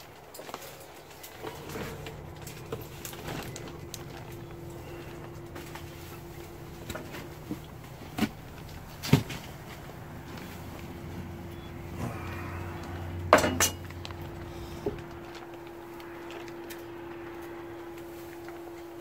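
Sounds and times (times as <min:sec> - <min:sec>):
faint hum: 0:00.6 - 0:19.0
grill gear clanking: 0:00.8 - 0:15.3.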